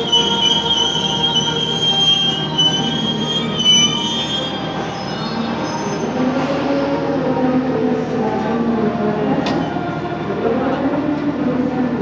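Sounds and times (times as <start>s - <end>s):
train wheels squealing: 0.0s - 6.7s
train rumble: 0.0s - 12.0s.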